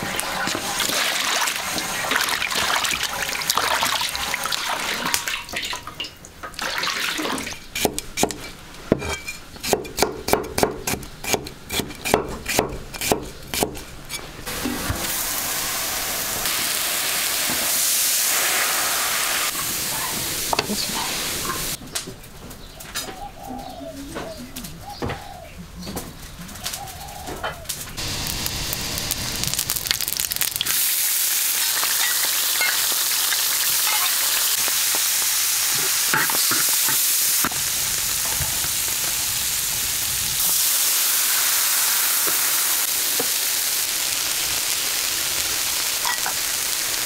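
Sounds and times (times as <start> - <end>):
steady hiss: 14.4 - 21.8, 28.0 - 33.8, 34.4 - 47.0.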